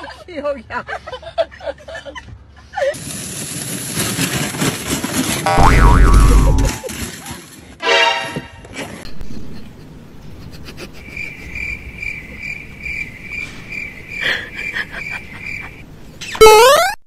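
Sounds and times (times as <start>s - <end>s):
cricket chirping: 11.0s - 15.8s.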